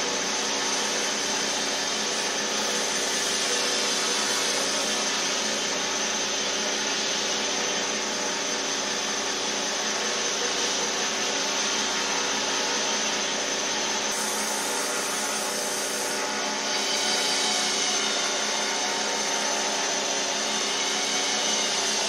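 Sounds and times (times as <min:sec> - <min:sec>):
belt grinder motor humming: 0:00.0 - 0:22.0
abrasive belt hissing on steel: 0:00.5 - 0:05.6, 0:14.0 - 0:22.0.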